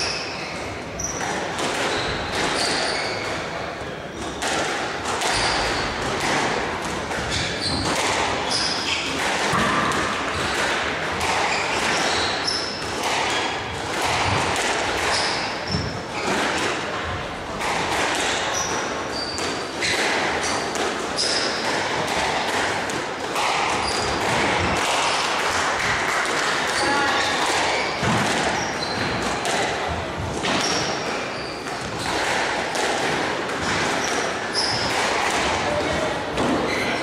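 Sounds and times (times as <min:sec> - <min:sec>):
shoes squeaking on court: 0:00.0 - 0:04.4, 0:05.3 - 0:06.0, 0:07.2 - 0:09.2, 0:11.2 - 0:13.7, 0:15.0 - 0:16.4, 0:18.5 - 0:21.6, 0:23.4 - 0:24.2, 0:26.7 - 0:29.4, 0:30.6 - 0:32.1, 0:33.6 - 0:35.1, 0:36.6 - 0:37.0
squash ball struck and hitting walls: 0:00.0 - 0:37.0
murmur of voices: 0:24.4 - 0:37.0.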